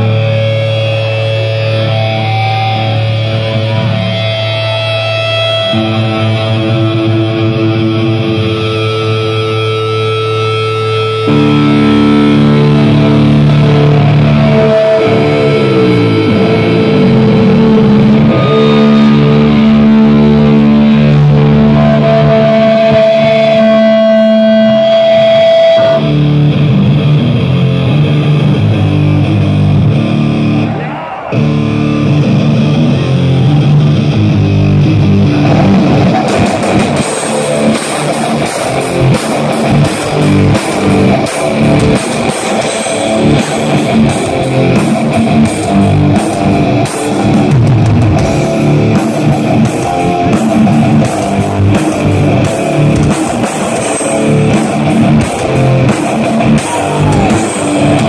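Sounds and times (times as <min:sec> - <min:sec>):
distorted electric guitars: 0:00.0 - 0:58.0.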